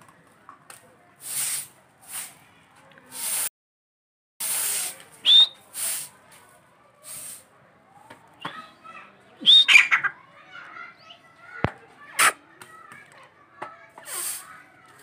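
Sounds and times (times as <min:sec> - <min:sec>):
bursts of hiss: 0:01.2 - 0:02.4, 0:03.1 - 0:03.5, 0:04.4 - 0:06.2, 0:07.0 - 0:07.5, 0:14.0 - 0:14.6.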